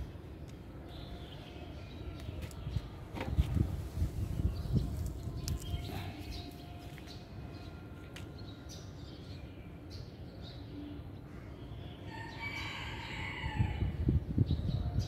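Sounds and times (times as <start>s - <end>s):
small birds chirping: 4.4s - 7.2s.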